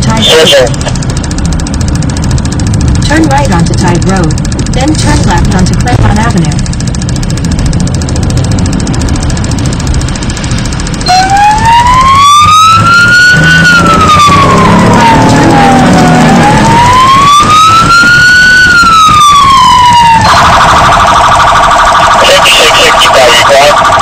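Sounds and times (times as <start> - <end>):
fire engine siren wail and yelp: 11.0 - 24.0.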